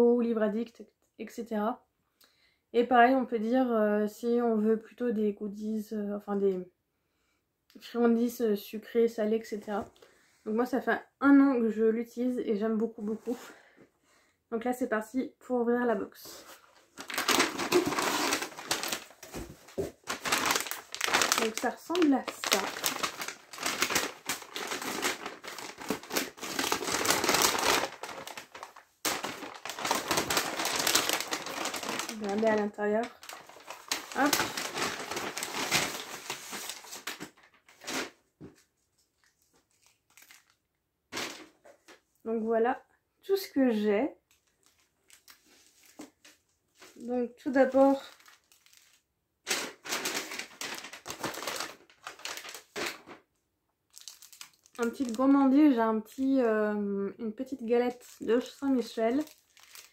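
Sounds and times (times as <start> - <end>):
plastic-wrapped packets rustling: 16.2 - 41.6, 44.3 - 53.3, 53.9 - 56.4, 57.9 - 59.9
paper wrapping crinkling: 16.4 - 41.6, 44.3 - 53.2, 53.9 - 55.4, 57.9 - 59.9.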